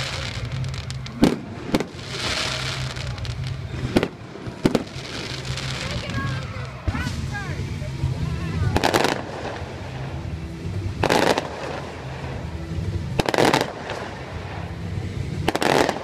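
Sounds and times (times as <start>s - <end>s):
fireworks bursting: 0.0s - 16.0s
steady low rumble: 0.0s - 16.0s.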